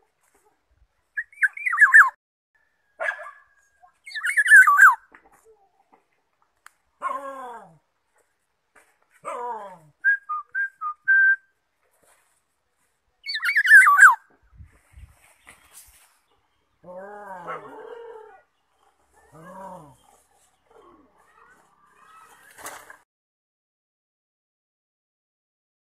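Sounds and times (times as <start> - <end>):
bird whistled notes: 1.2 - 2.2, 4.0 - 5.0, 13.2 - 14.2.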